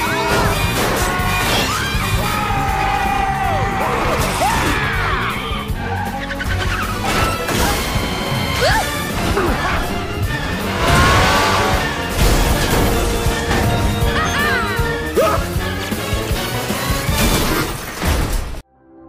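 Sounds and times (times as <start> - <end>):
tires squealing: 0.0 - 14.8
busy film score: 0.0 - 19.0
vehicle crashing: 5.7 - 18.6.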